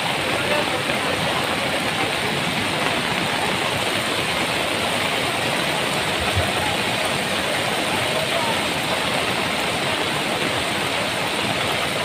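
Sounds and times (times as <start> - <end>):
heavy rain: 0.0 - 12.0
river water rushing: 0.0 - 12.0.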